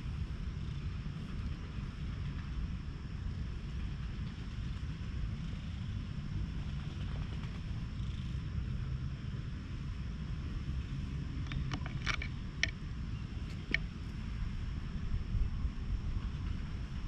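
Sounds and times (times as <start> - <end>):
cat purring: 3.2 - 9.5.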